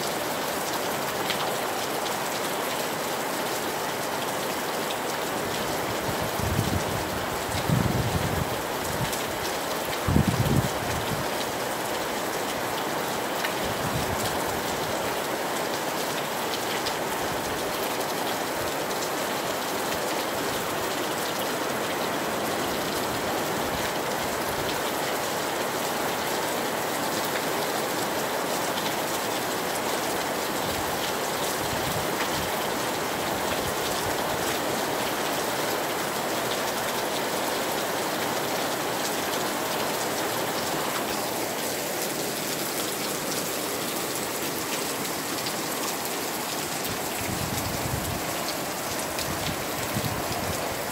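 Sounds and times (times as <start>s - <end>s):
rain falling on a beach: 0.0s - 50.9s.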